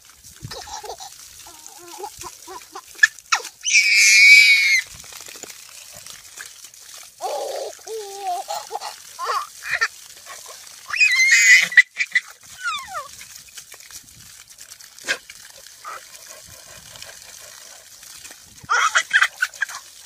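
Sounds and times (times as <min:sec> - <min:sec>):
hose water spraying and splashing: 0:00.0 - 0:20.0
toddler squealing with laughter: 0:00.5 - 0:04.8, 0:10.9 - 0:13.1, 0:18.7 - 0:19.8.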